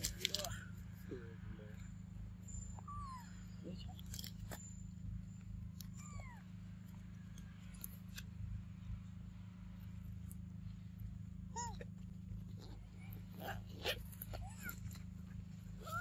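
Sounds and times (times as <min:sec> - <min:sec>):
steady low hum: 0:00.0 - 0:16.0
macaque coo calls: 0:02.7 - 0:04.2, 0:11.5 - 0:11.9, 0:12.5 - 0:15.0, 0:15.8 - 0:16.0.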